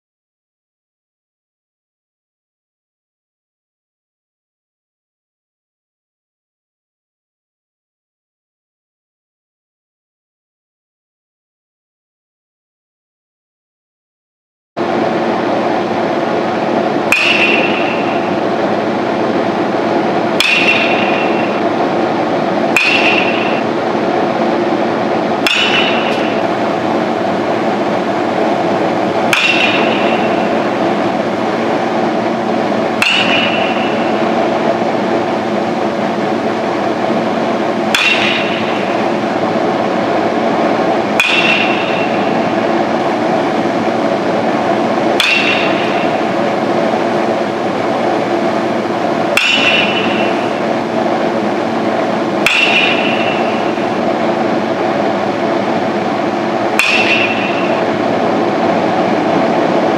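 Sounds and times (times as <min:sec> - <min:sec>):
building hum: 0:14.8 - 0:59.9
baseball bat hitting balls: 0:16.8 - 0:59.9.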